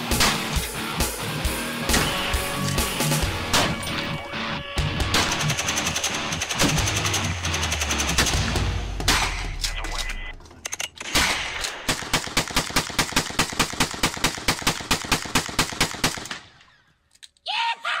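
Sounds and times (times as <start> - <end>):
gunshots: 0.0 - 0.7, 3.4 - 3.9, 5.0 - 10.0, 11.0 - 16.6
rapid automatic gunfire: 5.1 - 8.6, 11.8 - 16.3.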